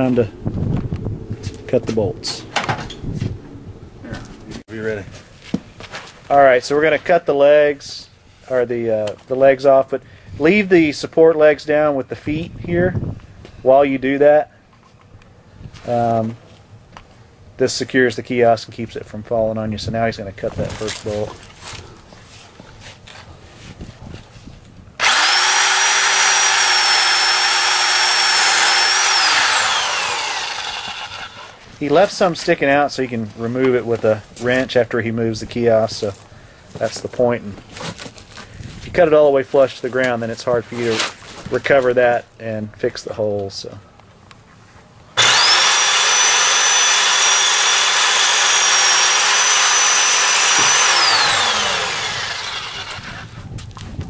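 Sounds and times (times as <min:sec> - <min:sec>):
angle grinder cutting steel: 0:25.0 - 0:31.6, 0:45.2 - 0:53.4.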